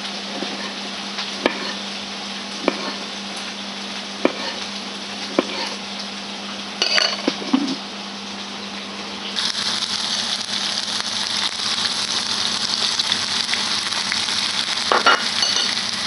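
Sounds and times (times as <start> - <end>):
steady hiss: 9.4 - 16.0.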